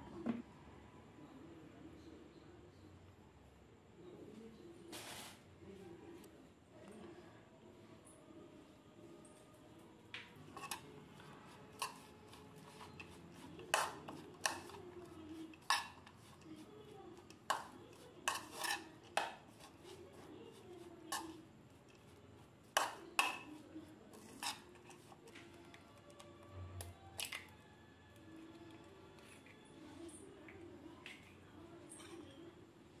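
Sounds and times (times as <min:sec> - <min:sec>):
faint room hum: 0:00.0 - 0:33.0
spoon stirring mixture in bowl: 0:10.2 - 0:32.5
spoon clinking against bowl: 0:11.7 - 0:14.8, 0:15.5 - 0:16.1, 0:17.2 - 0:19.4, 0:22.8 - 0:23.6.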